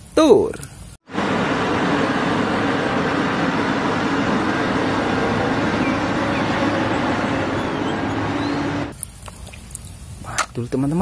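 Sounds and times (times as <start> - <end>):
excavator diesel engine running: 1.1 - 9.0.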